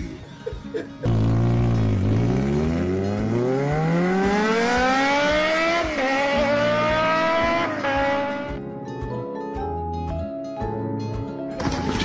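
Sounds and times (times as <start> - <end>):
racing car engine revving: 1.1 - 8.6.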